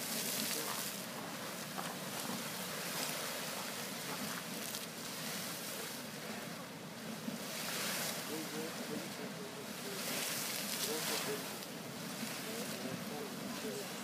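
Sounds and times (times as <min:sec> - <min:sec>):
geyser splashing water: 0:00.0 - 0:14.0
hissing steam: 0:00.0 - 0:14.0.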